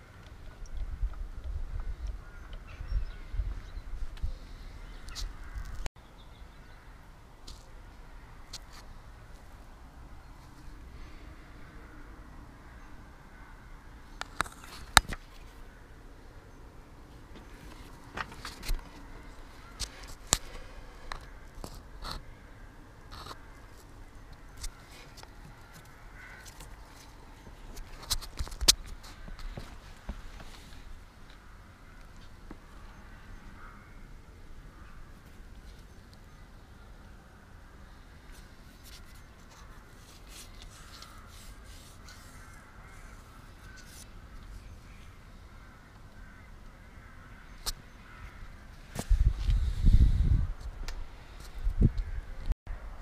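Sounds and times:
low background noise: 0.0 - 49.4.

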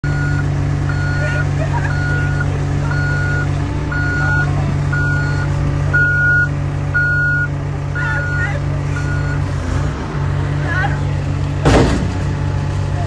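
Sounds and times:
backup alarm beeping: 0.0 - 9.4
excavator engine humming: 0.0 - 13.0.

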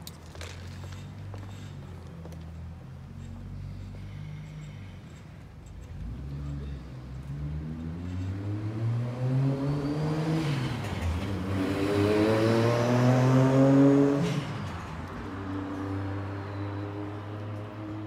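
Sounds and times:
vehicle engine accelerating: 5.8 - 18.0.

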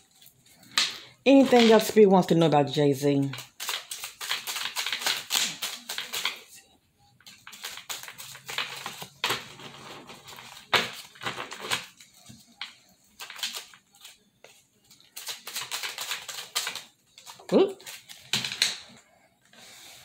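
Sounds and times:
cards being shuffled: 3.2 - 6.5, 7.3 - 18.9.

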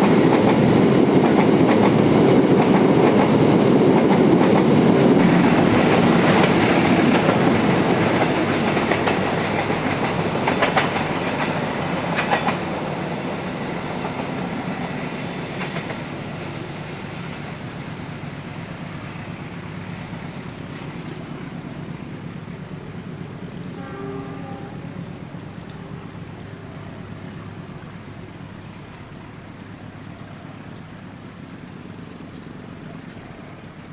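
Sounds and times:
train wheels clacking over rails: 0.0 - 26.1.

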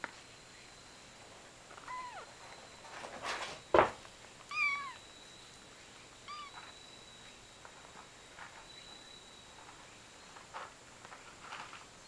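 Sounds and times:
kitten mewing: 1.8 - 2.3, 4.5 - 5.0, 6.3 - 6.6.

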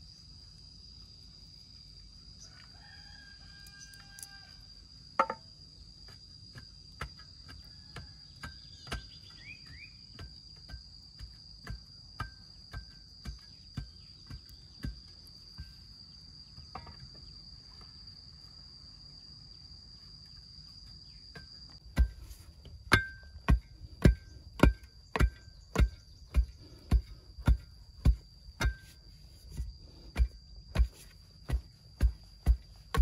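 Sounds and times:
high insect drone: 0.0 - 33.0
stick thudding on soil: 21.8 - 33.0.

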